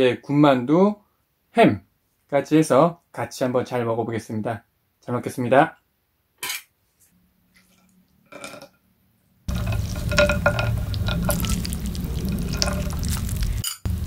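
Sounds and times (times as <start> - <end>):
broth dripping and splashing: 9.5 - 13.6
steady low hum: 9.5 - 14.0.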